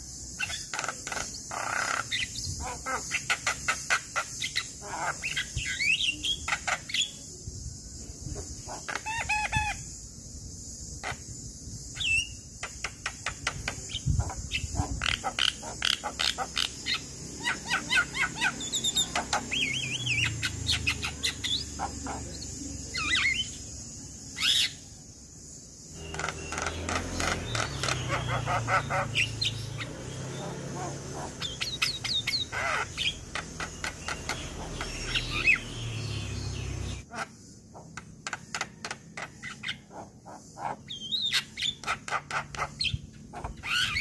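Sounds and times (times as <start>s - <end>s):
steady high hiss: 0.0s - 27.5s.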